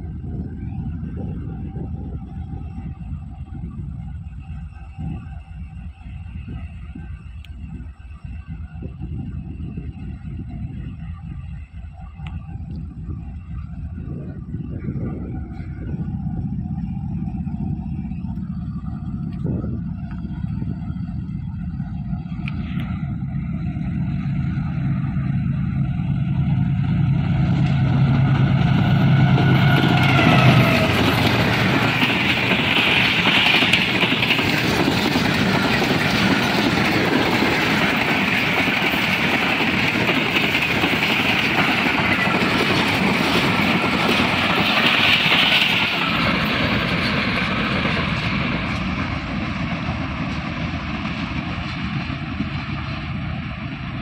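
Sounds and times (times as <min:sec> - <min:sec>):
locomotive engine hum: 0:00.0 - 0:54.0
train wheels rattling on rails: 0:13.7 - 0:54.0.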